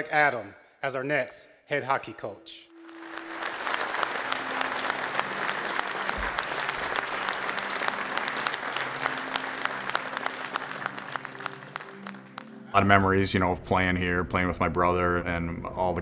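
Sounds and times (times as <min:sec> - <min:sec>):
audience applauding: 0:02.7 - 0:12.7.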